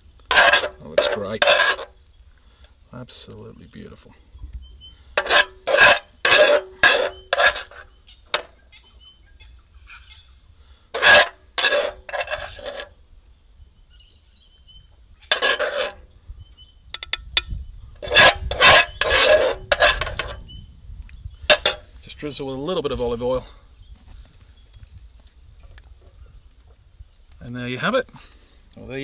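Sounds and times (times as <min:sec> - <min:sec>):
metal spoon scraping frying pan: 0:00.2 - 0:02.0, 0:05.1 - 0:08.5, 0:10.9 - 0:13.0, 0:15.3 - 0:16.0, 0:18.0 - 0:20.5, 0:21.4 - 0:21.9.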